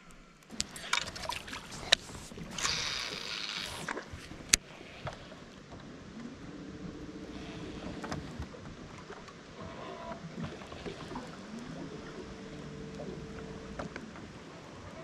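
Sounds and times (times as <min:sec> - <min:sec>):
electric trolling motor whining: 0:02.4 - 0:04.6, 0:06.2 - 0:14.2.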